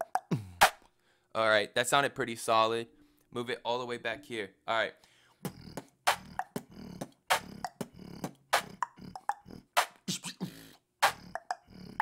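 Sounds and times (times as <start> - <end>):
person beatboxing: 0.0 - 0.8, 5.4 - 12.0.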